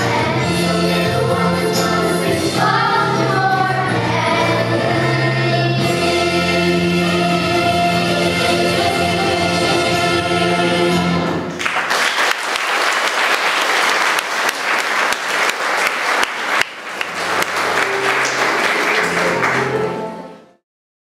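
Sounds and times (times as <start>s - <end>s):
children's choir singing: 0.0s - 11.6s
audience applauding: 11.4s - 20.3s.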